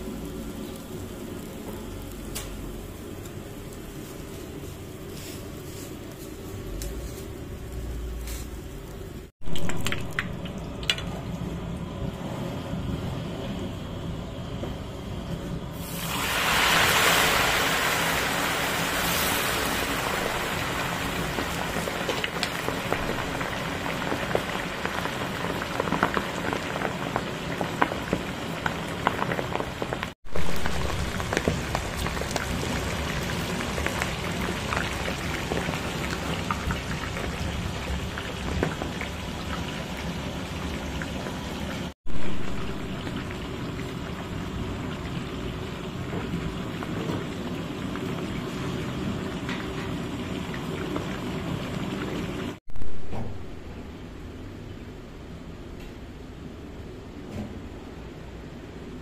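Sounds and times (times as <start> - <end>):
fish sizzling in hot oil: 15.8 - 52.6.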